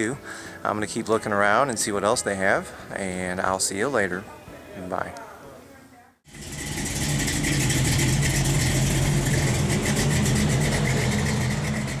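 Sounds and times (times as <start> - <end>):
car engine idling: 6.3 - 12.0.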